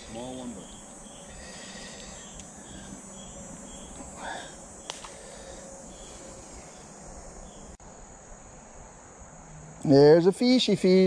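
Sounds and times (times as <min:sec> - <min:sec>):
insect chorus: 0:00.0 - 0:11.0
sharp click: 0:04.8 - 0:05.2.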